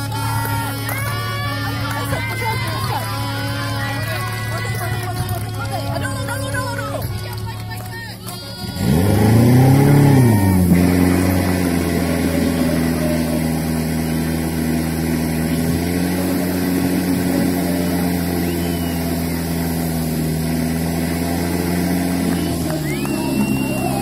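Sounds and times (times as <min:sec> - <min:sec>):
pump engine running at high revs: 0:00.0 - 0:24.0.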